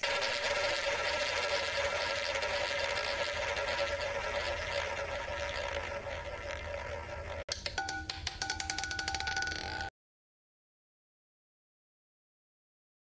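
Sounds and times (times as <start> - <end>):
roulette ball rolling: 0.2 - 9.9.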